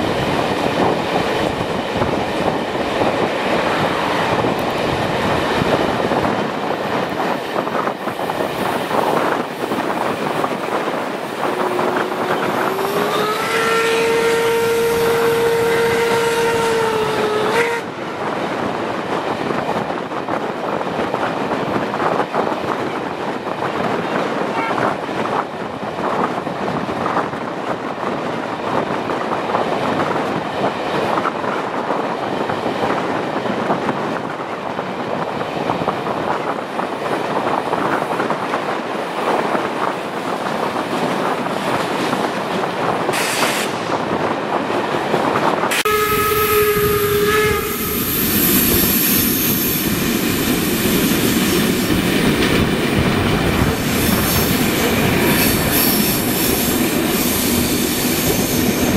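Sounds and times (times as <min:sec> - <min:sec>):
train wheels clattering on rails: 0:00.0 - 0:45.9, 0:46.6 - 0:58.9
wind noise: 0:00.0 - 0:58.9
locomotive whistle blast: 0:12.7 - 0:17.9, 0:45.7 - 0:48.1.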